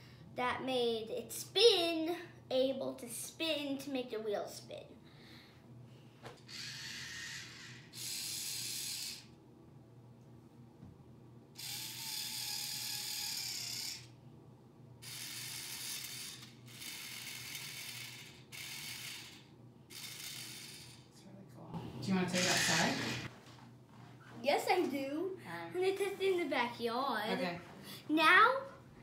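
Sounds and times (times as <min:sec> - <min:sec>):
small electric motors whirring: 0:06.4 - 0:09.4, 0:11.6 - 0:14.2, 0:15.0 - 0:21.1, 0:22.3 - 0:23.3.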